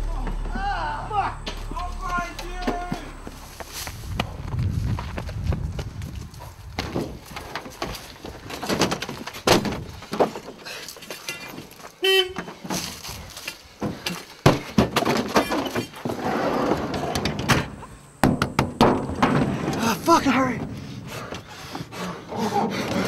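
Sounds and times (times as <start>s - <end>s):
knocks and scuffling against van: 1.4s - 23.0s
short horn toot: 12.0s - 12.4s.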